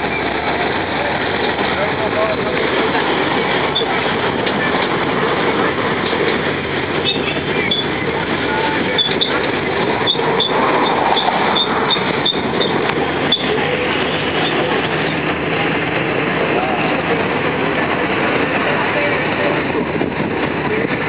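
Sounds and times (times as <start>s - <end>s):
carriage rattles and ticks: 0.0s - 16.1s
road train running noise: 0.0s - 21.0s.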